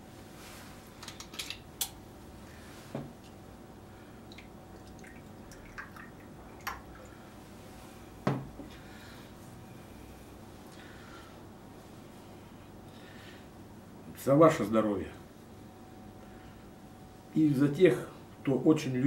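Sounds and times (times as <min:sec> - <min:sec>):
liquid pouring into glass: 0:04.3 - 0:07.2.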